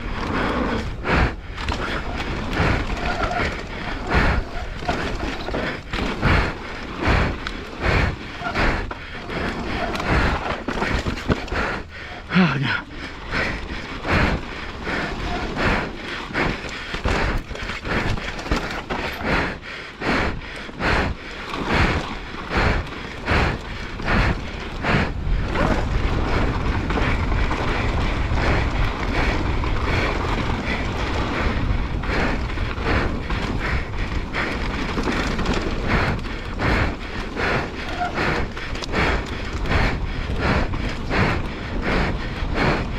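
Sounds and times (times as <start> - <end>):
bike knocking and rattling: 0.0 - 42.9
bike tyres rolling over dirt and stones: 0.0 - 42.9
wind rushing over microphone: 21.7 - 42.9.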